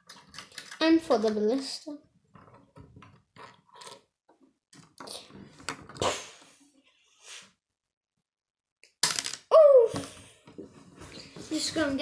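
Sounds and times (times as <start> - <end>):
plastic pieces clattering on wood: 0.0 - 1.4.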